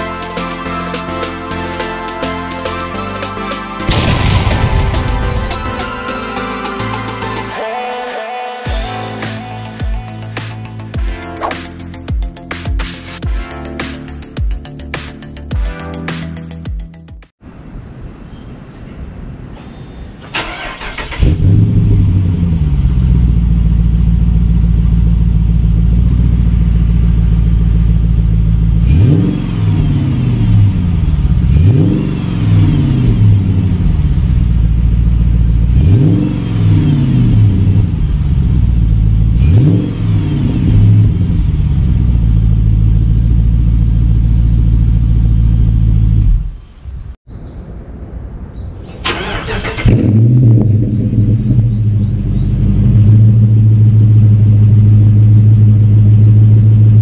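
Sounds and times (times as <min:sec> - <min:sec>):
car engine idling with throttle blips: 0:20.4 - 0:46.6, 0:49.0 - 0:57.0.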